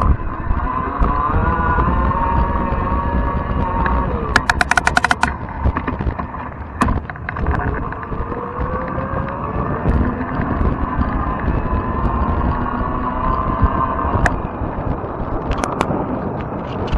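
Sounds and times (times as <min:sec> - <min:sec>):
bike tyre rumble: 0:00.0 - 0:16.9
wind buffeting microphone: 0:00.0 - 0:16.9
sharp knock: 0:04.4 - 0:05.3.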